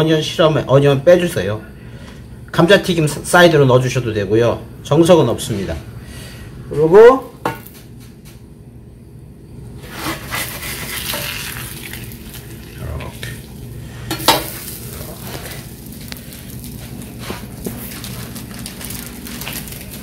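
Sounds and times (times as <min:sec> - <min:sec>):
metal spatula scraping: 0:09.8 - 0:11.4
meat sizzling on a griddle: 0:10.4 - 0:12.8, 0:14.1 - 0:18.0.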